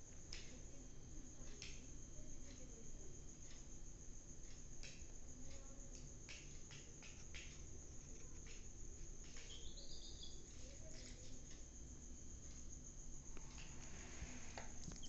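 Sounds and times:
rustling and small clicks: 3.4 - 15.0
chick peeping: 9.2 - 11.1.

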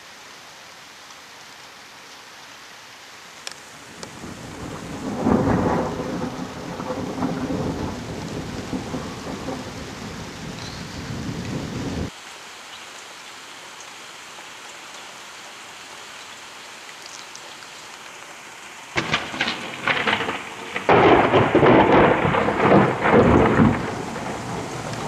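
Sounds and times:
steady rain: 0.0 - 25.0
thunder rumbling: 3.8 - 12.1, 19.0 - 25.0.

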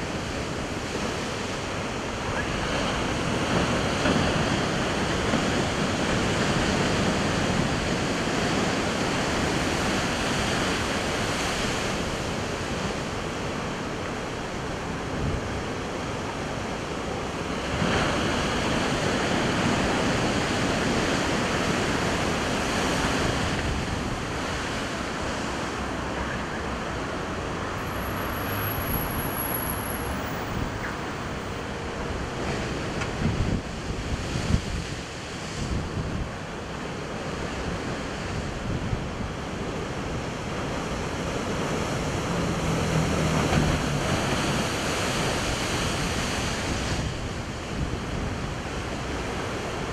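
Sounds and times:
wind buffeting microphone: 17.7 - 49.9.

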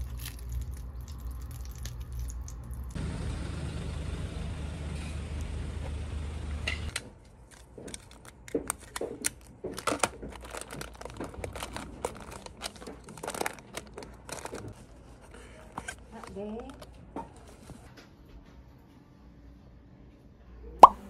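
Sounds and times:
plastic wrappers crinkling: 0.0 - 3.0, 7.4 - 17.9.

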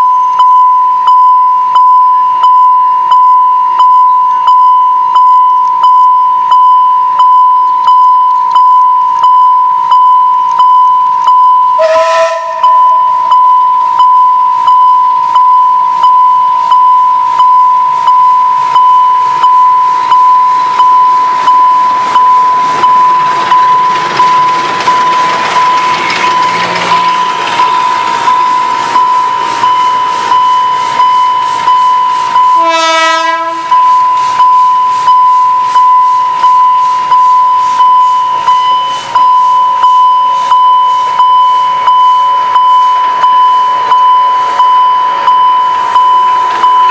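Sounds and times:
level-crossing warning bell ringing: 0.0 - 46.9
steady tone: 0.0 - 46.9
train whistle blast: 11.7 - 12.9, 30.8 - 34.4.

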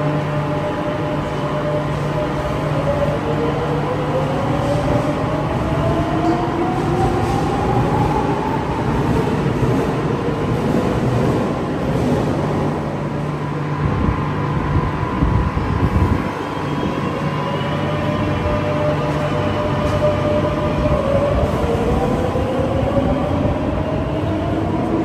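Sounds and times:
wheels rumbling on rail: 0.0 - 25.0.

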